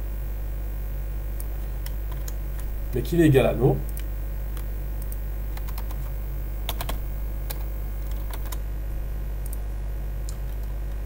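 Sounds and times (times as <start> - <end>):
steady low hum: 0.0 - 11.0
computer keyboard typing: 1.8 - 3.0, 3.8 - 8.6.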